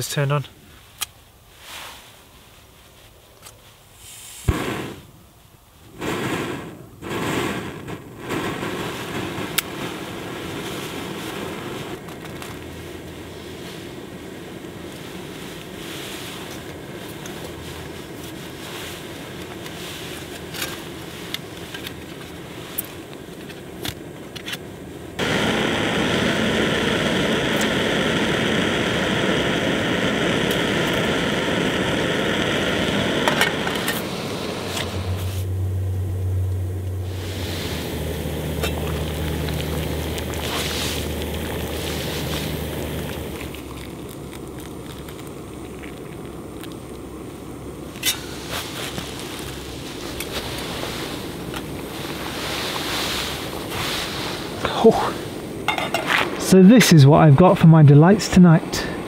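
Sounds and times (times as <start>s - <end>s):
gas stove hissing: 3.8s - 59.0s
snow packed into metal pot: 8.3s - 24.6s, 37.0s - 46.8s, 47.9s - 57.1s.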